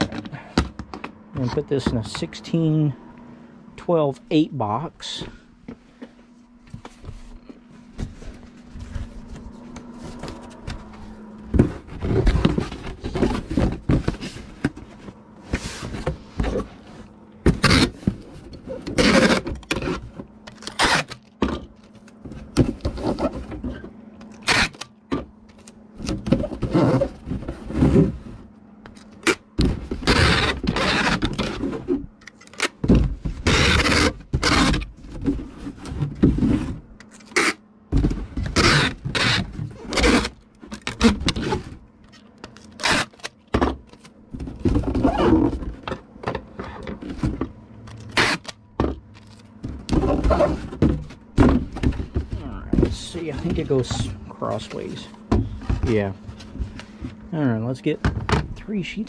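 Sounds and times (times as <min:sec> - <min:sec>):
faint steady hum: 0:00.0 - 0:59.0
cardboard box thunks and scrapes: 0:11.5 - 0:20.2, 0:49.7 - 0:53.9.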